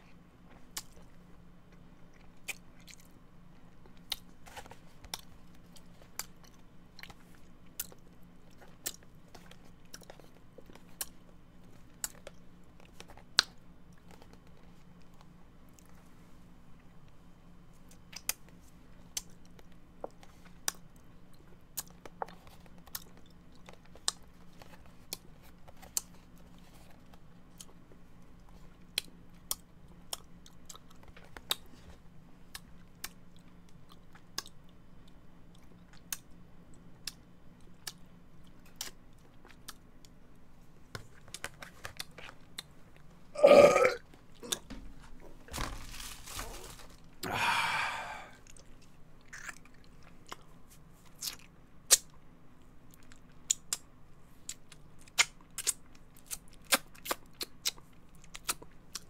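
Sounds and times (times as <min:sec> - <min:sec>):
wet chewing clicks and smacks: 0:00.5 - 0:04.4, 0:05.1 - 0:16.0, 0:17.8 - 0:31.7, 0:32.5 - 0:40.2, 0:41.0 - 0:43.1, 0:48.4 - 0:53.9, 0:54.5 - 0:59.0
man burping: 0:43.4 - 0:44.0
soft breathy sounds: 0:46.4 - 0:48.6.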